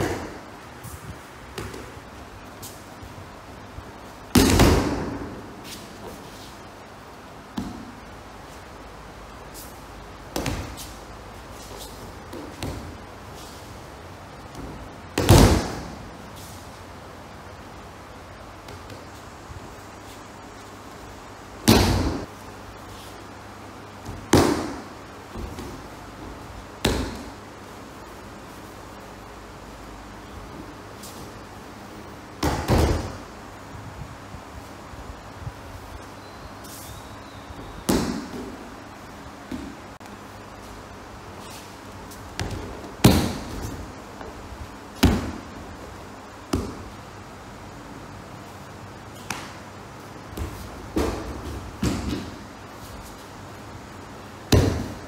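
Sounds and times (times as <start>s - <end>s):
body thumps on training mats: 4.3s - 5.3s, 14.6s - 15.9s, 21.6s - 22.3s, 32.4s - 33.2s, 45.0s - 45.6s, 50.3s - 52.4s, 54.5s - 55.0s.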